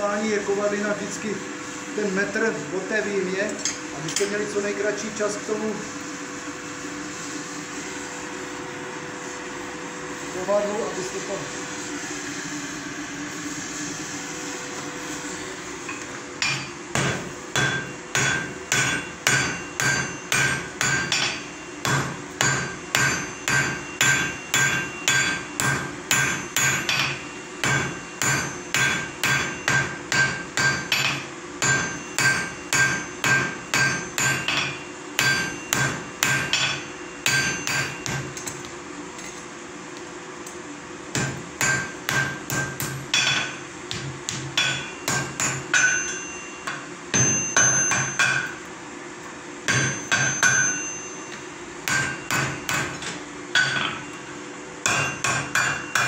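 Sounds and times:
hammer striking iron on anvil: 15.9 - 39.4, 41.1 - 48.7, 49.6 - 56.0.

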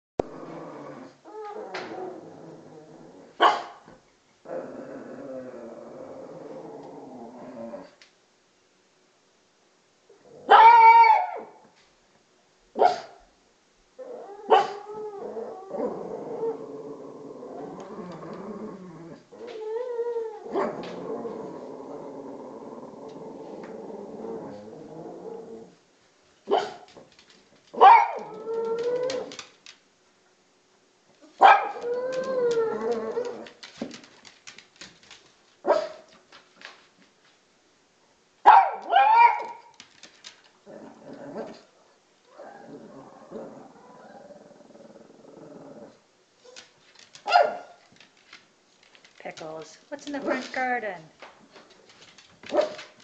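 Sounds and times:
dog whining: 1.2 - 2.2, 14.0 - 16.6, 17.5 - 21.6, 27.8 - 29.5, 31.2 - 33.7, 38.7 - 39.8
dog barking: 3.4 - 3.8, 10.5 - 11.5, 12.8 - 13.2, 14.5 - 14.8, 26.5 - 26.9, 27.8 - 28.4, 31.4 - 31.8, 35.7 - 36.1, 38.4 - 39.7, 47.3 - 47.8
dog howling: 27.8 - 29.5, 31.4 - 33.7, 38.7 - 39.8.

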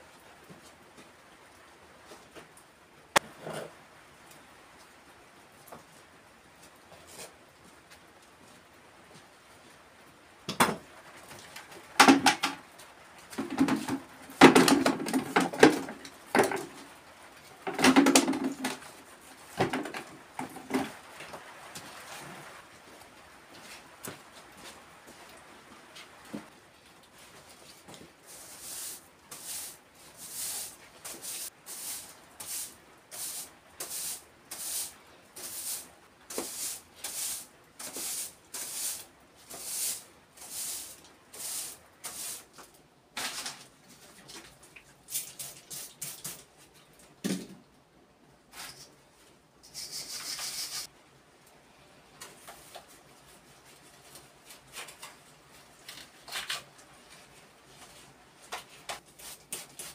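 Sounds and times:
broom sweeping stone floor: 6.9 - 7.4, 13.3 - 22.6, 27.1 - 46.8, 48.4 - 51.0, 52.2 - 59.9.

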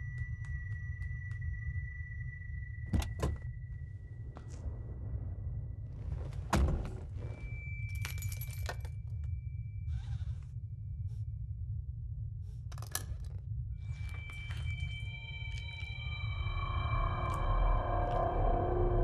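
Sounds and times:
keys jangling: 7.9 - 9.0
steady low hum: 8.9 - 19.0.

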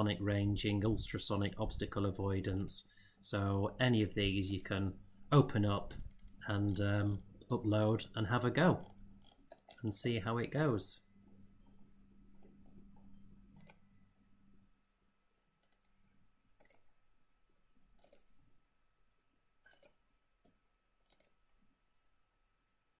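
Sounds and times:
faint computer mouse clicks: 13.5 - 13.8, 16.6 - 16.8, 18.0 - 18.3, 19.6 - 21.4.

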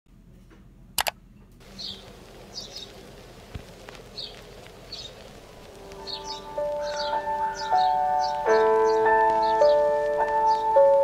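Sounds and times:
faint steady background noise: 0.1 - 11.0
sharp clicks: 1.0 - 1.2
small birds chirping: 1.6 - 11.0.

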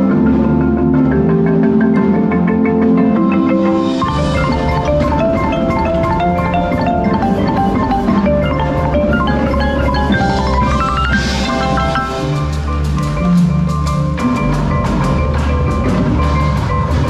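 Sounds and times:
marimba playing quick runs: 0.0 - 17.0
deep bass layer: 3.8 - 17.0.

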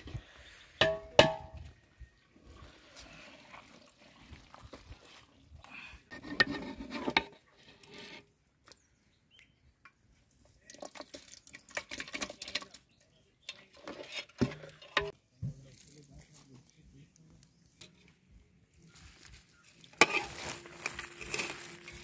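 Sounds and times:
metal cookware clinking and scraping: 13.4 - 15.2, 19.9 - 22.0.

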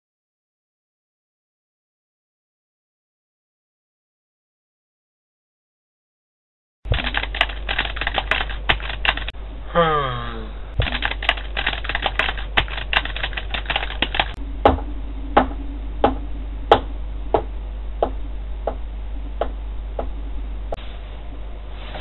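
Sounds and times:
sharp clicks: 6.9 - 9.3, 10.8 - 14.4.

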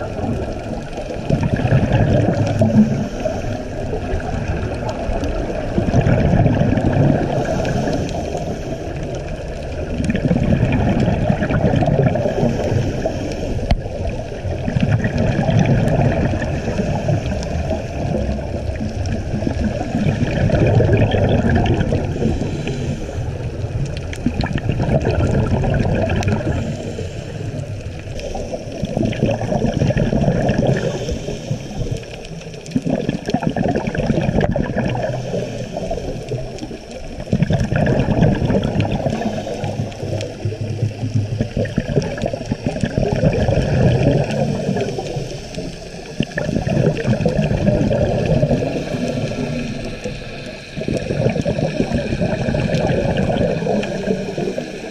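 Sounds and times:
underwater bubbling gurgle: 0.0 - 54.9.

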